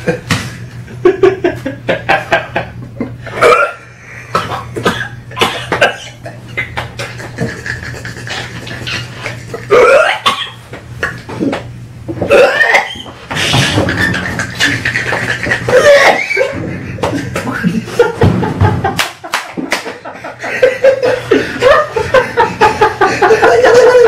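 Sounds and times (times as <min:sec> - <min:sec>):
people laughing: 0:00.9 - 0:03.3, 0:05.7 - 0:09.9, 0:13.4 - 0:24.0
man gagging and coughing: 0:03.3 - 0:06.8, 0:08.2 - 0:11.6, 0:12.2 - 0:17.9.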